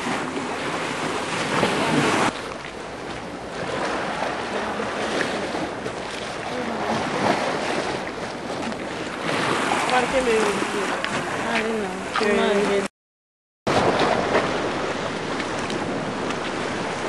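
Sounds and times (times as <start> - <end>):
sea water splashing against wall: 0.0 - 12.9
wind on microphone: 0.0 - 12.9, 13.7 - 17.0.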